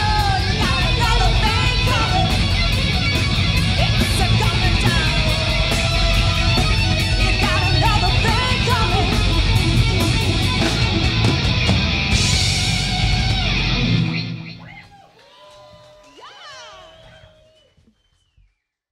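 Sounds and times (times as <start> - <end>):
hard rock band playing: 0.0 - 14.7
bass guitar: 0.0 - 14.8
distorted electric guitars: 0.0 - 14.8
drums keeping a steady beat: 0.0 - 18.0.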